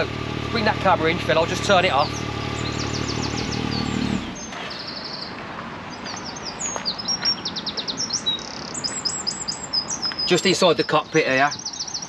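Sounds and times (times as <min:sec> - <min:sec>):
engine idling: 0:00.0 - 0:04.9
birds chirping and trilling: 0:00.6 - 0:12.0.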